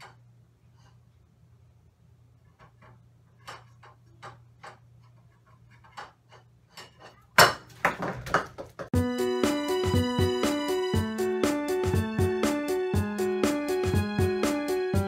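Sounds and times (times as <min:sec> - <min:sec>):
breakbeat music: 0:08.9 - 0:15.0.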